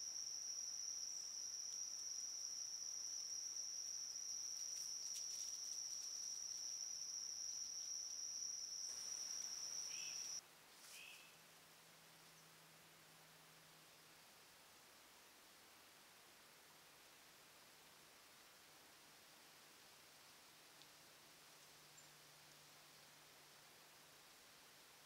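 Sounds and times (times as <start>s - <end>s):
cricket trilling: 0.0s - 10.4s
faint chirps: 0.0s - 11.4s.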